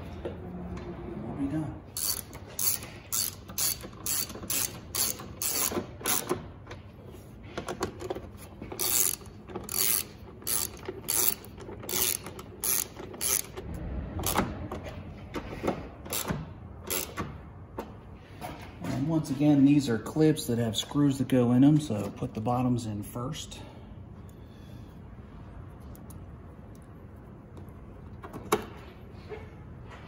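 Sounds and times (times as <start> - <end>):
hand ratchet clicking: 2.0 - 6.4, 7.9 - 14.4, 16.0 - 17.3.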